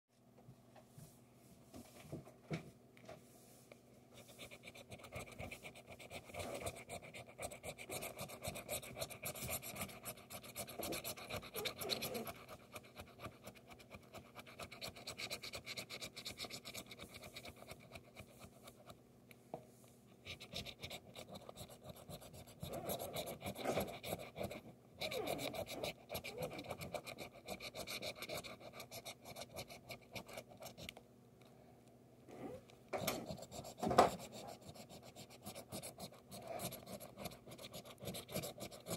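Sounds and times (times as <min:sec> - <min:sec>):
coin scratching lottery ticket: 0:20.4 - 0:30.8, 0:33.0 - 0:38.9.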